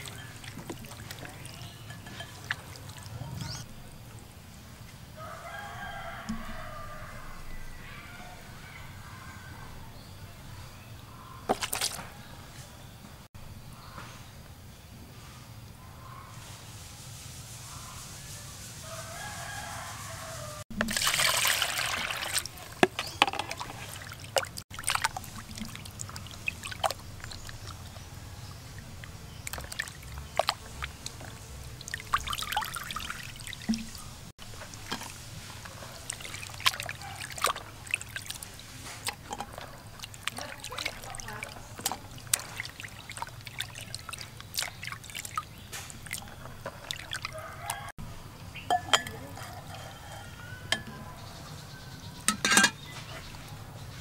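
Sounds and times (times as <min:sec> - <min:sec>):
pouring water rush: 0:00.0 - 0:03.5, 0:18.9 - 0:47.9
water splashing and dripping: 0:00.0 - 0:03.7, 0:11.4 - 0:12.2, 0:19.1 - 0:47.9.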